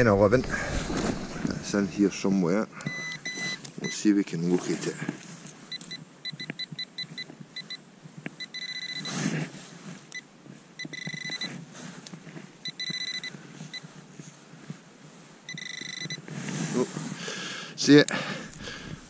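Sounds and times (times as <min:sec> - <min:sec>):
gloved hands rustling through soil: 0:00.0 - 0:02.3, 0:16.2 - 0:17.3
metal detector beeping: 0:02.8 - 0:04.0, 0:05.7 - 0:07.8, 0:08.4 - 0:09.2, 0:10.1 - 0:11.6, 0:12.6 - 0:13.9, 0:15.5 - 0:16.3.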